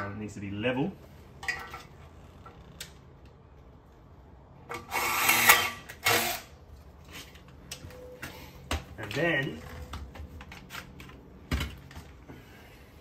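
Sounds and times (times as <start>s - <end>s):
cordless drill drilling into metal: 4.8s - 6.5s.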